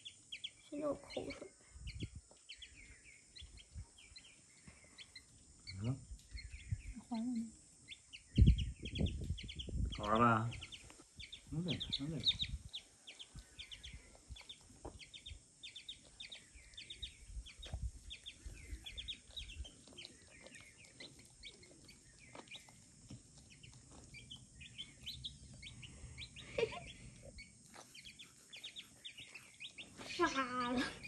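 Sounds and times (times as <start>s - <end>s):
chick peeping: 0.0s - 30.4s
soft low thumps: 8.3s - 10.0s.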